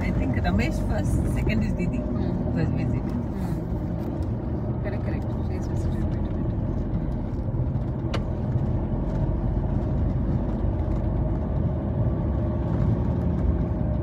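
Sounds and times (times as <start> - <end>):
vehicle engine rumbling: 0.0 - 14.0
wheels on rough dirt track: 3.0 - 14.0.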